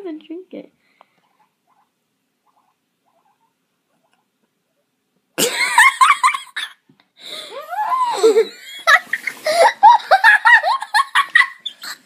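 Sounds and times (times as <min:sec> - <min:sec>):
high-pitched squealing laughter: 0:07.5 - 0:12.0.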